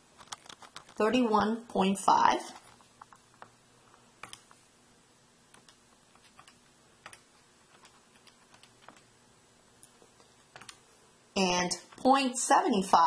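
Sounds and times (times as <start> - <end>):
calculator keys clicking: 5.6 - 9.1, 10.5 - 10.8.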